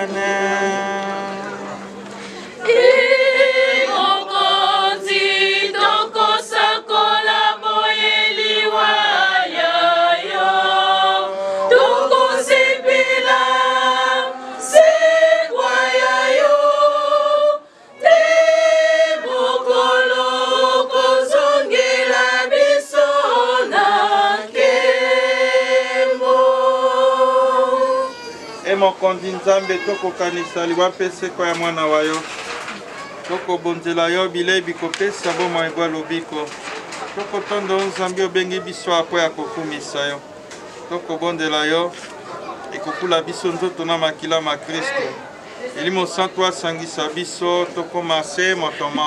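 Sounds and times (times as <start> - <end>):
women singing a hymn: 0.0 - 28.4.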